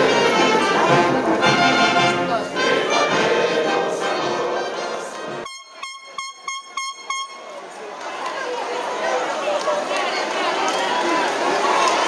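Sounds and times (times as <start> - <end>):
brass band playing: 0.0 - 7.6
short pitched toots: 5.4 - 7.6.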